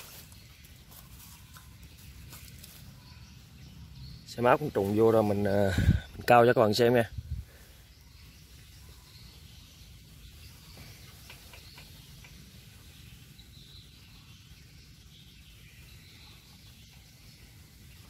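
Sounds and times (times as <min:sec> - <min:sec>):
faint high chirping: 0:00.0 - 0:18.0
soft ticks: 0:11.1 - 0:12.4.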